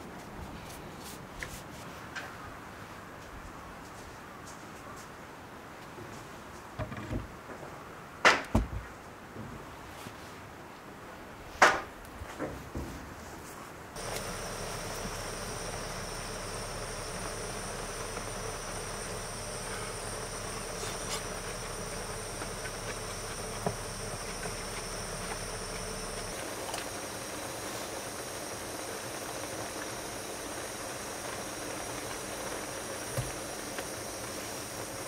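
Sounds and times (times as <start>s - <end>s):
gas stove burner hissing: 14.0s - 35.0s
pot simmering: 14.0s - 35.0s.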